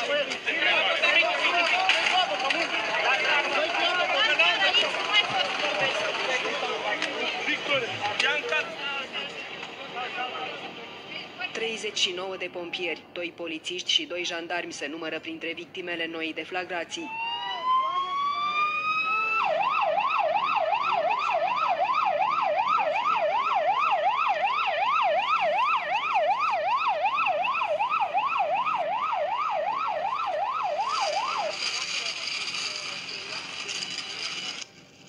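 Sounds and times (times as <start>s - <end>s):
ambulance siren: 17.0s - 32.0s.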